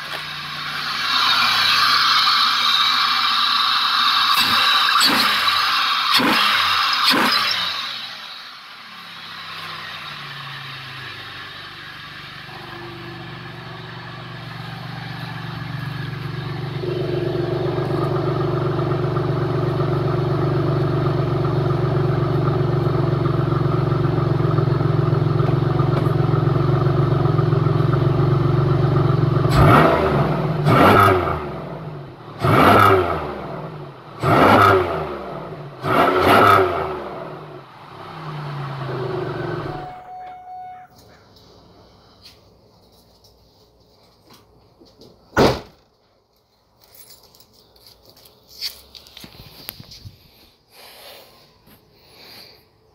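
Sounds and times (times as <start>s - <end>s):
car engine revving: 0.0s - 40.0s.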